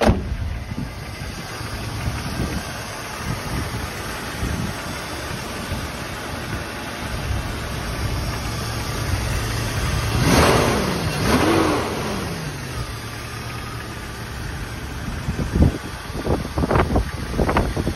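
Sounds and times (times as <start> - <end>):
wind noise on microphone: 0.0 - 11.4, 14.4 - 17.9
car engine idling: 0.0 - 17.9
engine revving: 0.0 - 17.9.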